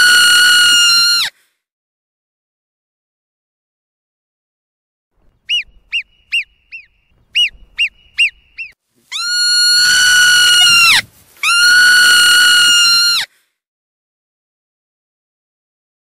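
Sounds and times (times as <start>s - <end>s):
marmot chirps: 5.4s - 12.0s
marmot long whistles: 5.5s - 13.3s.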